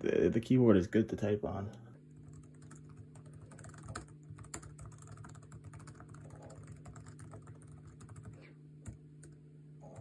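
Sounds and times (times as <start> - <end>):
laptop keyboard typing: 2.1 - 10.0.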